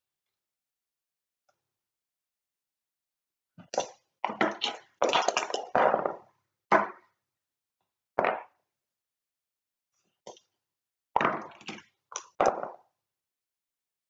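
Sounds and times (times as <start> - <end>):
dice and checkers on wooden board: 3.7 - 7.0, 11.2 - 12.8.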